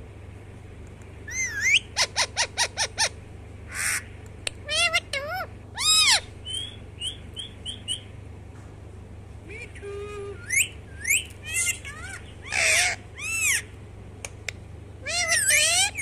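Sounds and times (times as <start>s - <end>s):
parakeet squawking: 1.3s - 8.1s, 10.3s - 13.8s, 15.0s - 16.0s.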